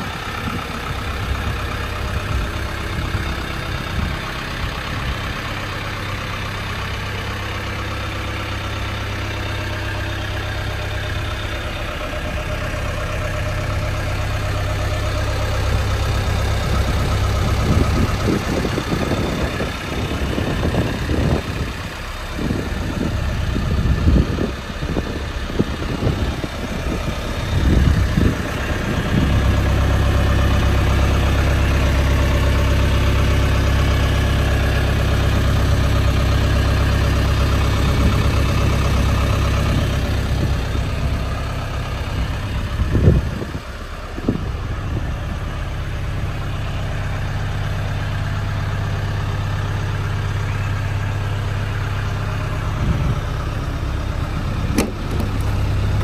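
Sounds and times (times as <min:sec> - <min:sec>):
diesel engine idling: 0:00.0 - 0:56.0
brief engine knocks: 0:54.7 - 0:55.6.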